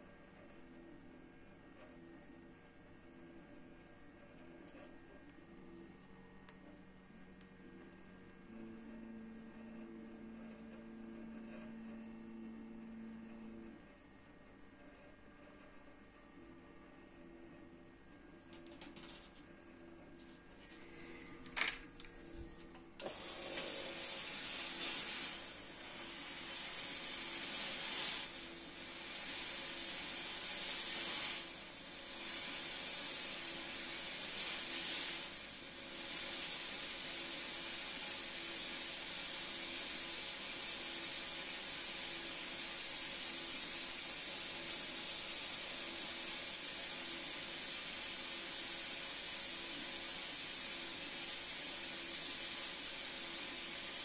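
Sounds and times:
fog machine hissing: 23.0 - 54.0.

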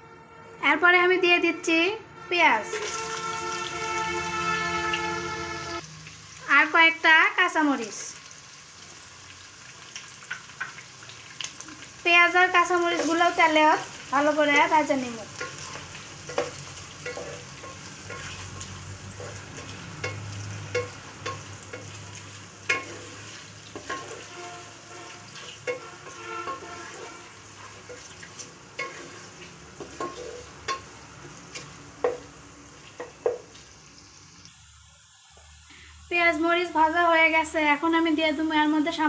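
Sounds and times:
onions sizzling in hot oil: 2.7 - 39.0
spatula scraping and knocking pan: 15.4 - 18.4, 19.2 - 22.0, 22.6 - 24.6, 25.4 - 30.9, 31.5 - 32.3.

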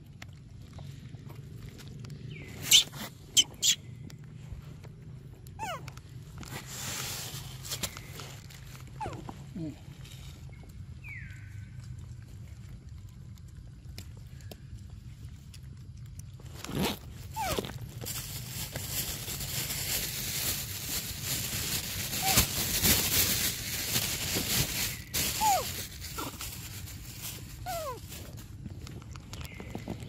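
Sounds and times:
macaques squeaky calls: 2.6 - 3.8, 22.2 - 22.4, 25.4 - 25.6.

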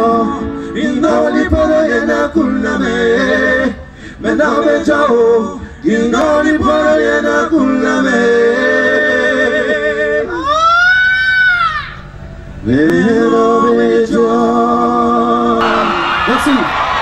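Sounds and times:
short breaths: 3.8 - 4.2.

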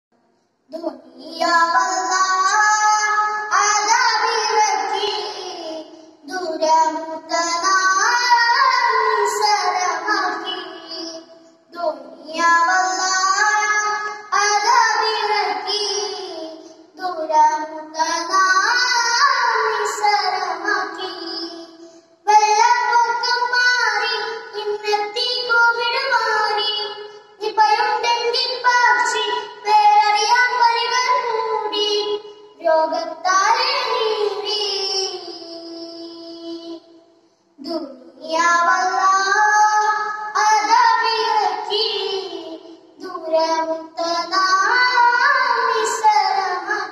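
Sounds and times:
boy singing: 0.7 - 36.9, 37.6 - 46.9.

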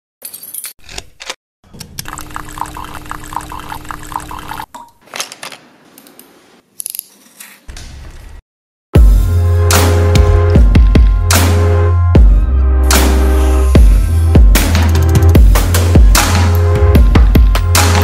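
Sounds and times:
espresso machine pouring coffee: 2.0 - 4.7.

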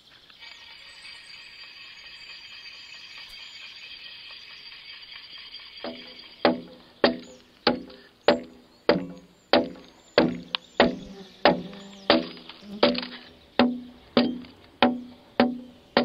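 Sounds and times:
axe chopping into log: 6.5 - 16.0.

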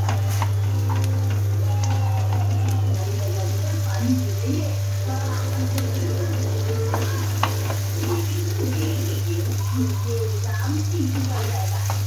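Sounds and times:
steady low hum: 0.0 - 12.0
vegetables sizzling in oil: 0.0 - 12.0
spatula tapping on pan: 5.7 - 9.6.

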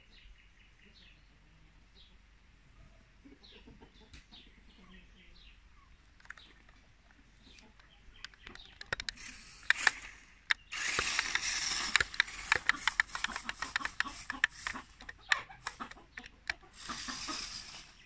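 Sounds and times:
toy car gears and tyres rattling: 8.2 - 18.0
grinding hiss on gravel: 9.1 - 16.0, 16.6 - 18.0.

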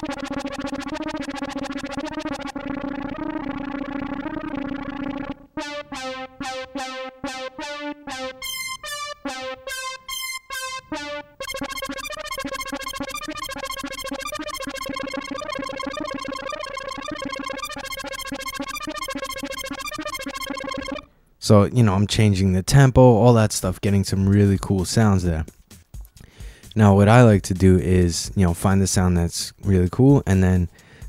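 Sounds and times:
synth brass arpeggio: 0.0 - 21.1.

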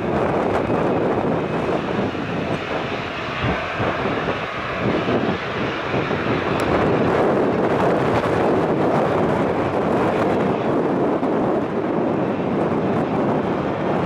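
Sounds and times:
jet engines rushing: 0.0 - 14.0.

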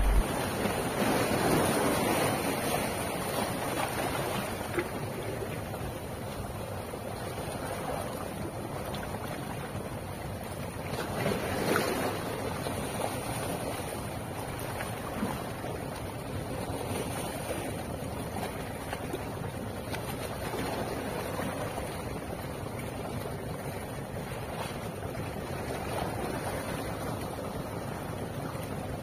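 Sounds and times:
wind on microphone: 0.0 - 0.6
sea waves splashing over rocks: 0.0 - 29.0.

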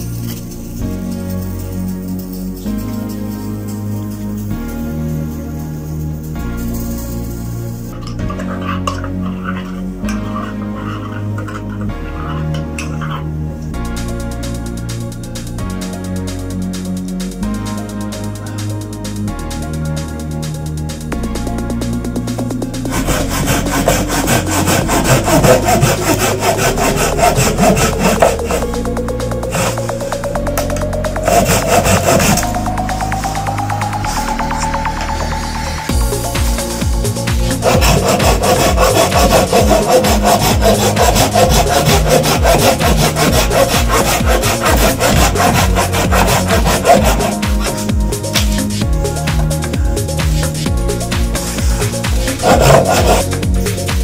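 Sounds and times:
electronic background music: 0.0 - 54.0
hand saw cutting wood: 8.0 - 13.2, 22.5 - 49.5, 51.3 - 54.0.

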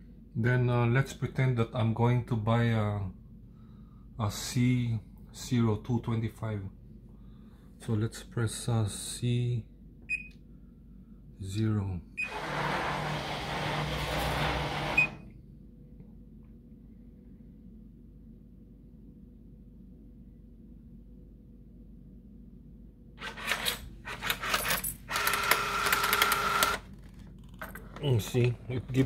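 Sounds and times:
vending machine motor: 12.2 - 15.3, 23.2 - 29.0
vending machine humming: 12.2 - 15.8, 23.1 - 29.0
coin mechanism clicking: 23.2 - 26.8
coins rattling into cup: 23.4 - 25.4.

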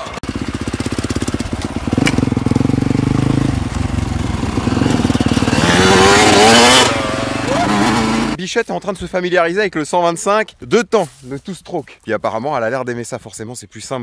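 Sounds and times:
motocross bike engine revving: 0.0 - 8.4.

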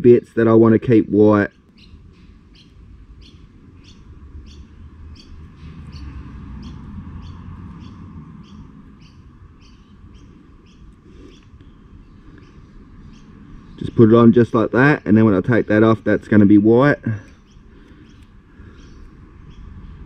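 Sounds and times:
small bird chirping: 1.5 - 20.0
low rumble: 1.9 - 11.0.

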